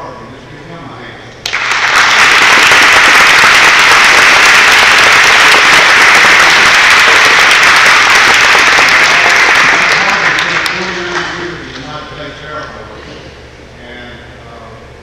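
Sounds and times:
audience applauding: 1.4 - 11.4.

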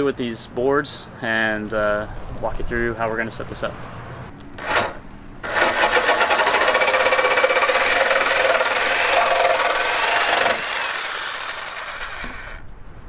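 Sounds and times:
jigsaw buzzing: 4.6 - 12.7.

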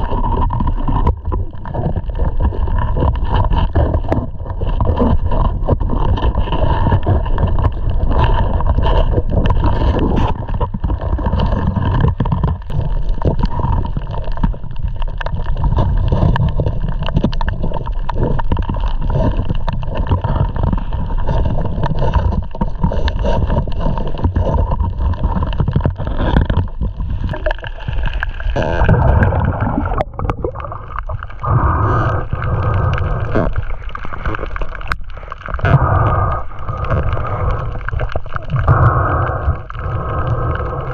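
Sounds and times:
muffled underwater noise: 0.0 - 40.9
small crackles and clicks: 0.0 - 40.9.

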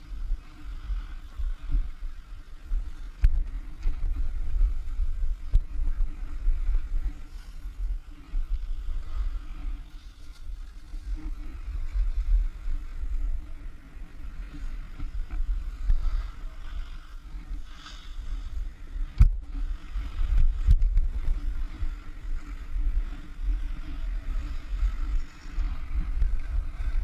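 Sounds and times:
skis scraping over snow: 0.0 - 27.0
wind buffeting microphone: 0.0 - 27.0.

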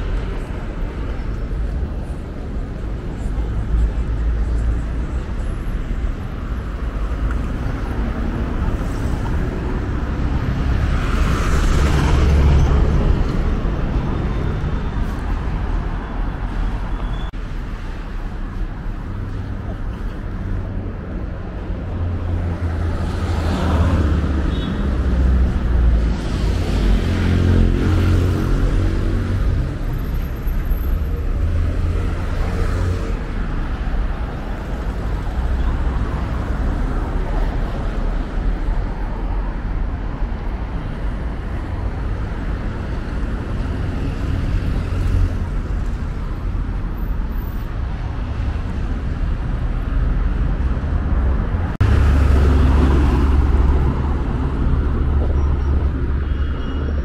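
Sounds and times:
low traffic rumble: 0.0 - 57.0
cars driving past: 2.9 - 17.8, 19.0 - 39.4, 40.0 - 57.0.

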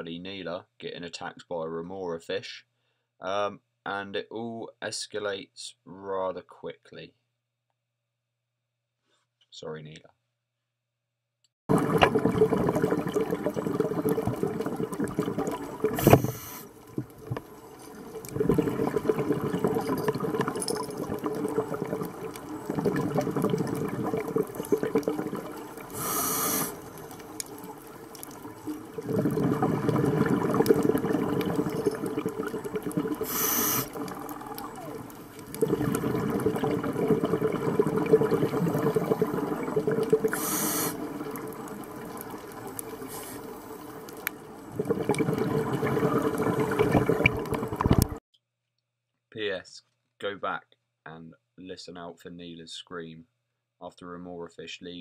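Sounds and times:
bubbling exhalations underwater: 11.7 - 48.2
hissing regulator inhalations: 12.0 - 46.9.

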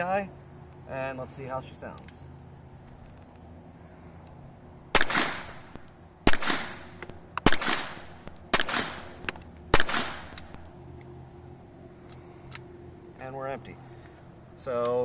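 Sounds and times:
suppressed pistol shots: 4.9 - 10.6.

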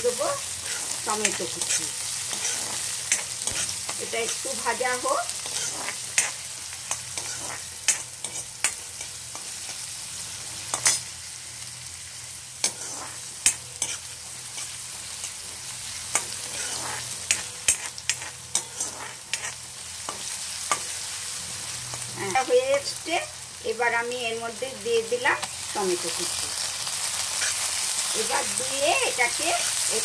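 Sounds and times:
onion sizzling in hot oil: 0.0 - 30.0
metal spatula scraping and tapping pan: 0.6 - 4.5, 16.1 - 20.9.

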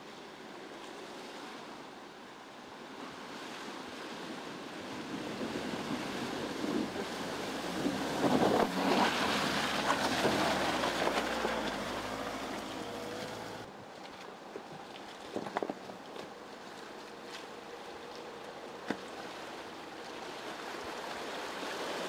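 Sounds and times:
water rushing around car wheels: 3.3 - 22.0
low car engine: 6.4 - 13.7.

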